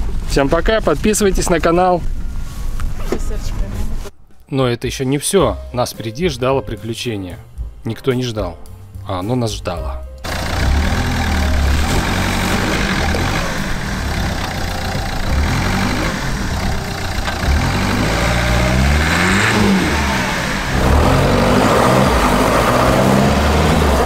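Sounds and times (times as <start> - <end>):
car engine revving: 10.2 - 24.0
tyres spinning in snow: 10.3 - 24.0.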